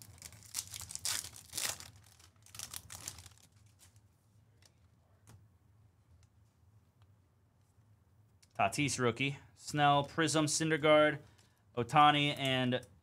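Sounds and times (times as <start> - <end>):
packaging tearing and crinkling: 0.0 - 3.9.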